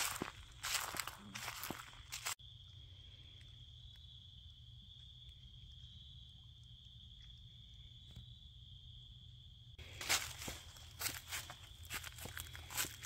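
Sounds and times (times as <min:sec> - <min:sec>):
footsteps crunching dry leaves: 0:00.0 - 0:02.4, 0:09.8 - 0:13.0
insects trilling: 0:00.0 - 0:13.0.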